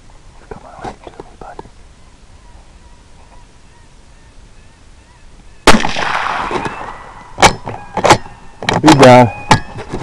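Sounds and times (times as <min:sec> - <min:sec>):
rifle shot with echo: 0:05.7 - 0:08.4.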